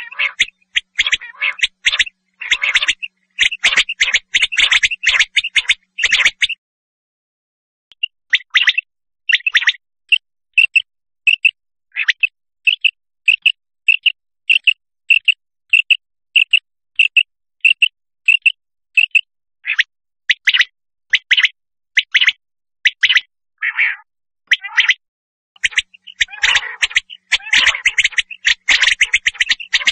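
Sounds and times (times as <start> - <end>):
quail calling: 0.0 - 6.6, 23.0 - 25.0, 25.6 - 29.9.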